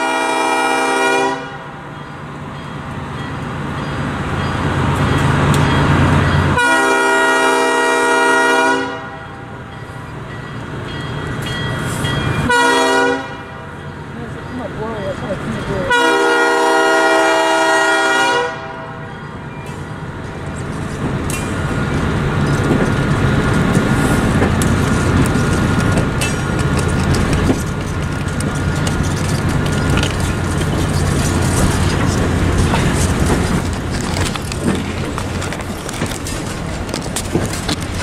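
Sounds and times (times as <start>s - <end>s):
train air horn: 0.0s - 1.8s, 6.5s - 9.3s, 12.4s - 13.7s, 15.9s - 19.0s
train coaches rumbling on rails: 0.0s - 38.0s
wheels clicking over rail joints: 19.6s - 38.0s.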